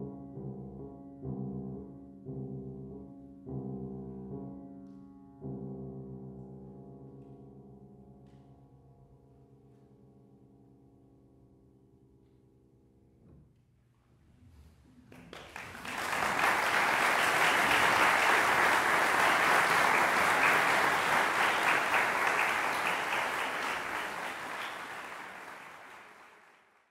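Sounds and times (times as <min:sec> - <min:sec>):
audience applause: 0:15.2 - 0:26.9.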